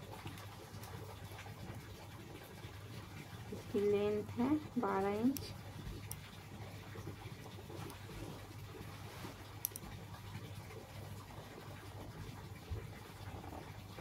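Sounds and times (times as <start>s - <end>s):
low steady hum: 0.0s - 14.0s
hands rubbing cotton fabric: 9.0s - 9.5s
faint ticks: 9.6s - 9.9s.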